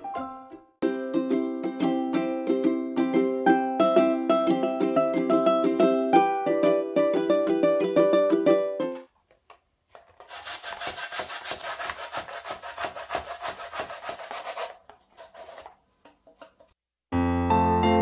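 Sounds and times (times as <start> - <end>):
coconut rasping on a metal grater: 10.3 - 15.8.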